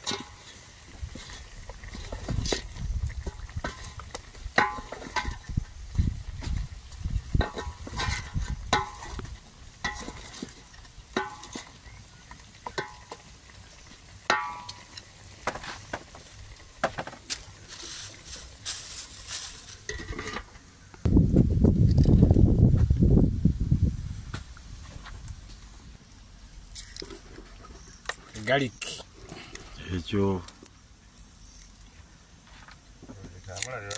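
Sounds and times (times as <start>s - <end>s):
faint sizzle: 0.0s - 21.1s.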